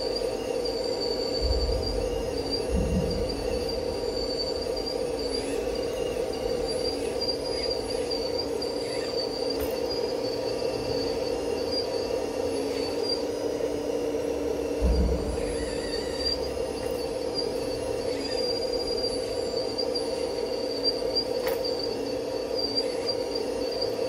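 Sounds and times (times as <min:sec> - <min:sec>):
high squealing tones: 0:00.0 - 0:13.7, 0:14.8 - 0:24.0
electric motors whining: 0:00.0 - 0:24.0
low thump: 0:01.4 - 0:04.4, 0:14.8 - 0:16.0.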